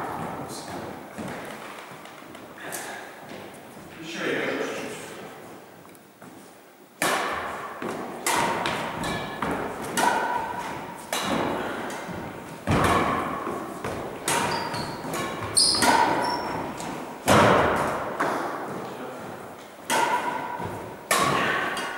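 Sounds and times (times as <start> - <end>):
rackets hitting shuttlecock with echo: 0.0 - 3.6, 7.0 - 21.9.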